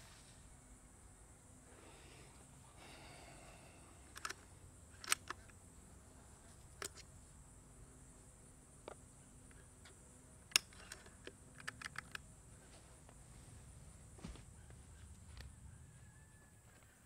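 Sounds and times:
air rifle lever action clicks: 4.0s - 5.6s, 6.7s - 7.1s, 8.9s - 12.3s.

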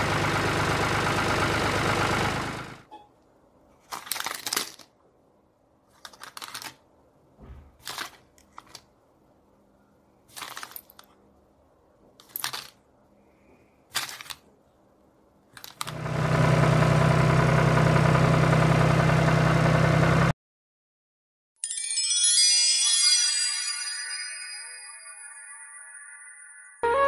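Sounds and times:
wooden sticks clattering: 12.2s - 12.8s.

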